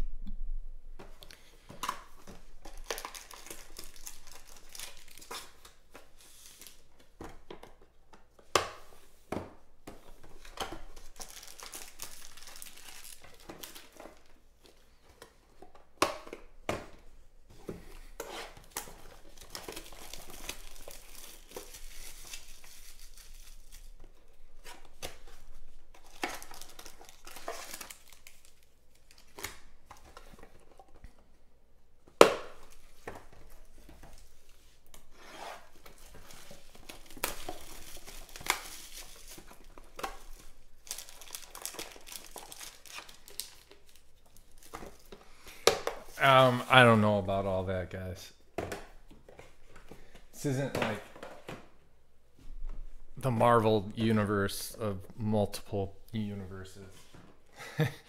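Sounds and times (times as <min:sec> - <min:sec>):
foil packs crinkling: 0:01.4 - 0:06.9, 0:10.3 - 0:15.0, 0:18.5 - 0:30.6, 0:32.6 - 0:47.4.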